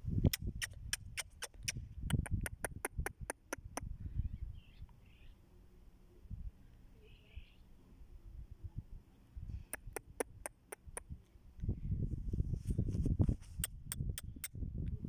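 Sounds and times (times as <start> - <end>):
faint chirps: 6.8 - 7.8.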